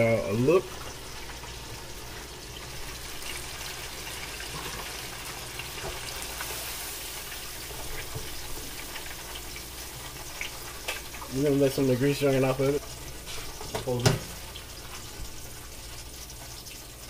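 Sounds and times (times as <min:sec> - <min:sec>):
oil bubbling and sizzling: 0:00.0 - 0:17.0
fryer lid and basket knocks: 0:13.7 - 0:14.4.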